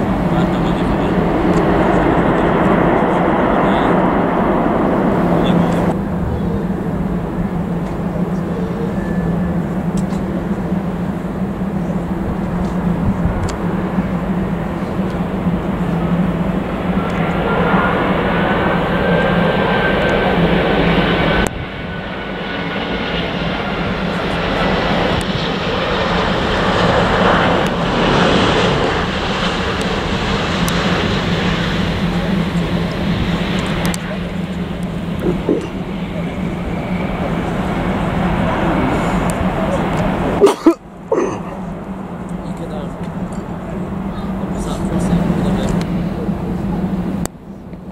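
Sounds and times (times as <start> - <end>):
jet airliner roar and whine: 0.0 - 47.9.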